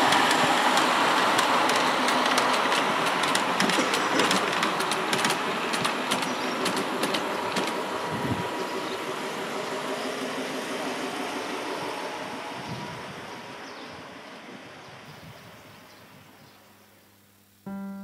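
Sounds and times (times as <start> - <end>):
model train wheel clicks: 0.0 - 7.9
train rolling rush: 0.0 - 16.4.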